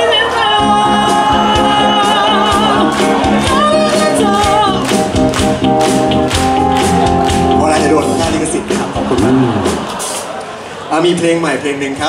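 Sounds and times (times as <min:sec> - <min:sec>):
person singing: 0:00.0 - 0:05.1
drums: 0:00.0 - 0:10.9
live pop band playing: 0:00.0 - 0:10.9.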